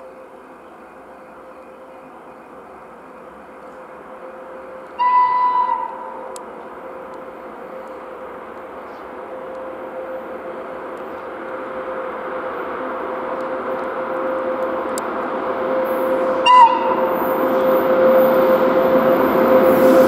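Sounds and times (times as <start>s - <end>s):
train rumble and hum: 0.0s - 20.0s
short high train horn blast: 4.3s - 7.8s, 8.9s - 20.0s.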